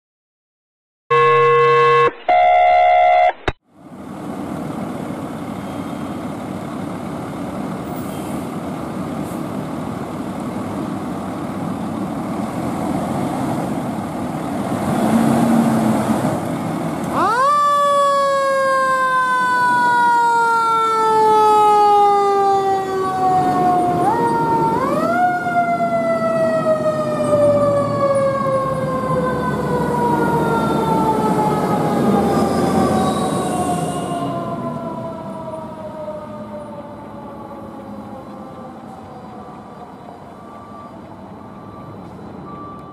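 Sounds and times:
mechanical siren wailing: 1.1s - 3.5s, 17.0s - 42.9s
fire engine diesel running: 3.8s - 14.8s, 15.9s - 42.9s.

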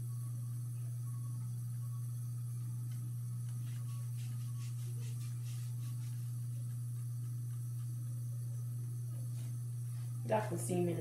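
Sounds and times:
steady low hum: 0.0s - 11.0s
rubbing on scalp: 3.5s - 8.2s.

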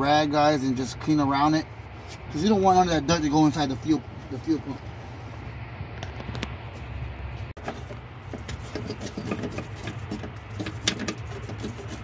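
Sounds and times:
brush scrubbing sheet metal: 7.6s - 12.0s.

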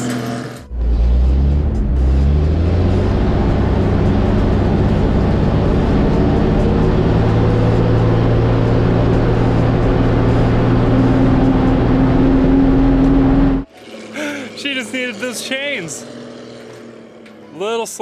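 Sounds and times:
truck engine droning: 0.6s - 18.0s
higher steady tone: 0.7s - 13.7s.

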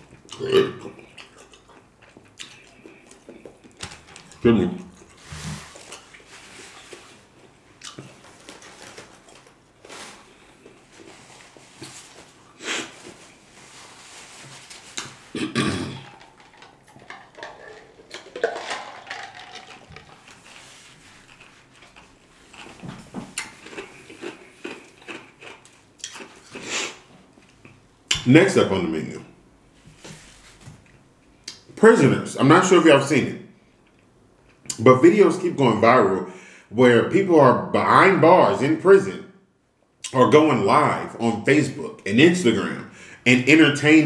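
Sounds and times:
person gulping: 0.0s - 6.3s, 15.0s - 20.3s.

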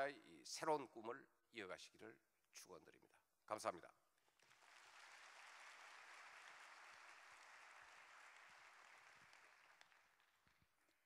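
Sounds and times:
faint audience applause: 4.4s - 11.0s.

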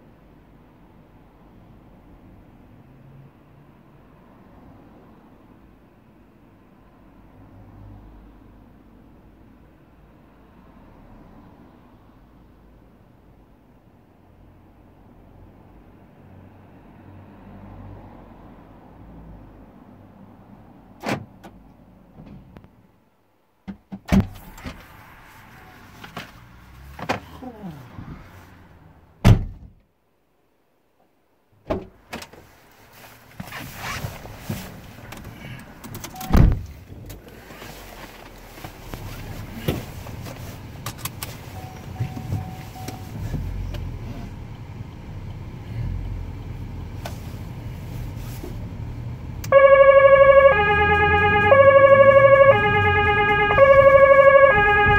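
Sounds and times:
knocks and thunks: 29.2s - 29.8s, 31.6s - 32.3s
siren: 49.5s - 54.9s.

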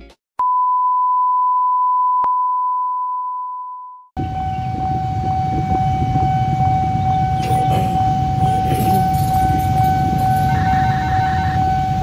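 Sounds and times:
outdoor noise: 4.2s - 12.0s.

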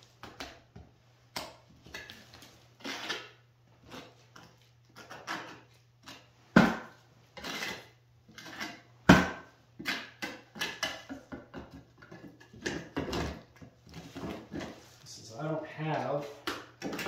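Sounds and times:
trowel scraping plaster: 2.8s - 6.3s, 7.4s - 8.9s.

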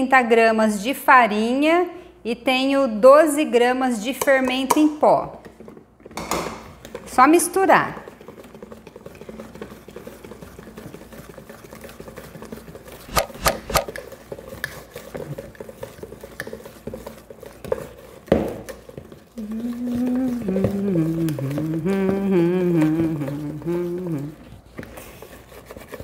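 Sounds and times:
whisk wires pattering against bowl: 6.8s - 26.0s.

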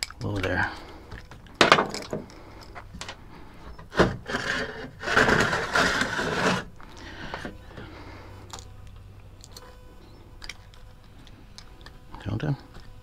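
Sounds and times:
scraping and rubbing: 2.1s - 7.9s.

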